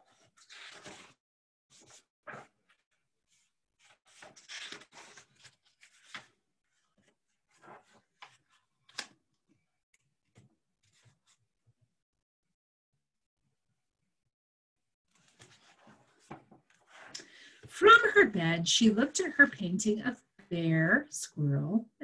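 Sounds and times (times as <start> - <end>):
paper rustling and rubbing: 0.1 - 9.1.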